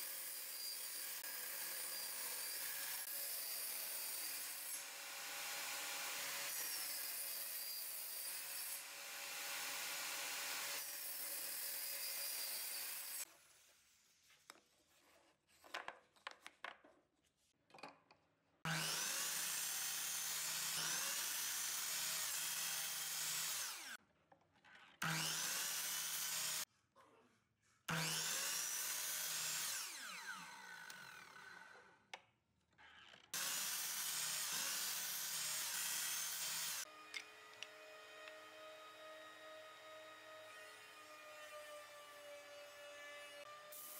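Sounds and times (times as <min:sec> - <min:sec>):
miter saw whining and cutting wood: 0:00.0 - 0:13.3, 0:18.7 - 0:24.0, 0:25.0 - 0:26.6, 0:27.9 - 0:31.9, 0:33.4 - 0:43.9
table saw cutting: 0:00.0 - 0:13.3, 0:18.7 - 0:24.0, 0:25.0 - 0:26.7, 0:27.9 - 0:31.9, 0:33.4 - 0:43.9
saw blade winding down: 0:27.9 - 0:31.9.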